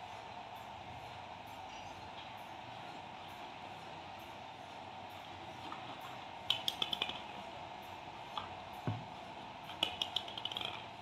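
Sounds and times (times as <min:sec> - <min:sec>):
plastic toy truck clicking and rattling: 0:06.5 - 0:07.3, 0:09.7 - 0:10.9.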